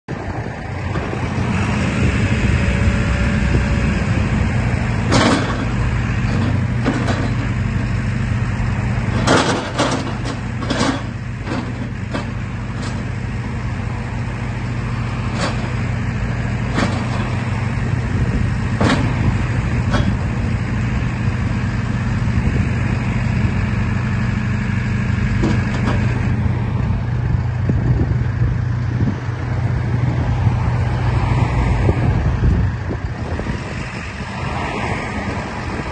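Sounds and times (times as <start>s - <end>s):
diesel engine running: 0.1s - 35.9s
hydraulic loader arm moving: 0.8s - 13.7s, 14.9s - 22.9s, 25.3s - 26.7s.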